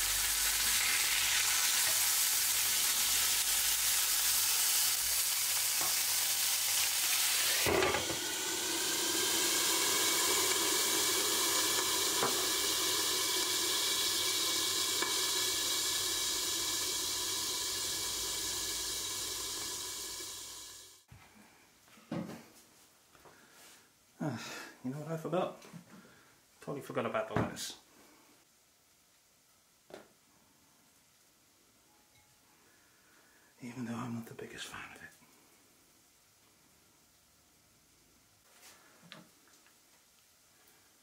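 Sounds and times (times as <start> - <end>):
patty sizzling in frying pan: 0.0 - 21.1.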